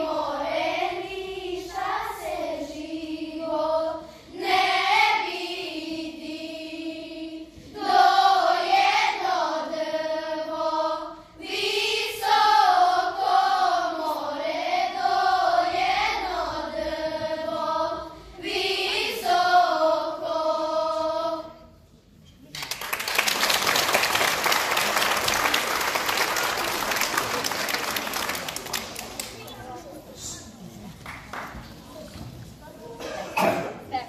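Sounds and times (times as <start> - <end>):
children's choir singing: 0.0 - 21.9.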